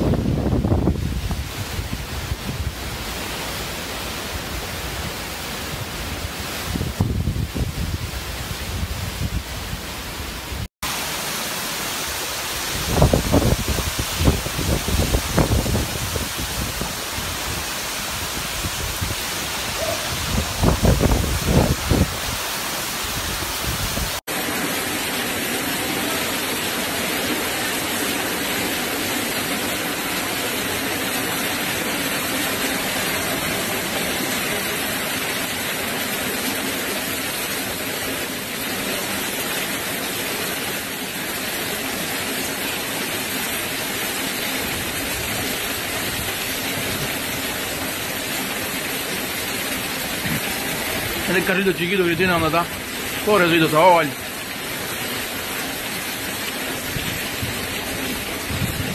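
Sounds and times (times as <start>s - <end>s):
wind buffeting microphone: 0.0s - 3.0s, 6.6s - 9.8s, 12.8s - 22.5s, 56.8s - 58.9s
heavy rain pouring: 0.0s - 58.9s.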